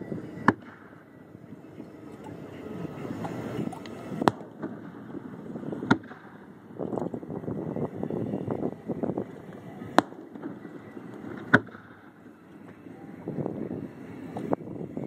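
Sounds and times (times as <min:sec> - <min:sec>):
fireworks bursting: 0:00.3 - 0:01.2, 0:02.9 - 0:12.9
faint fireworks pops: 0:00.4 - 0:01.0, 0:03.2 - 0:05.2, 0:05.8 - 0:07.1, 0:09.2 - 0:12.9.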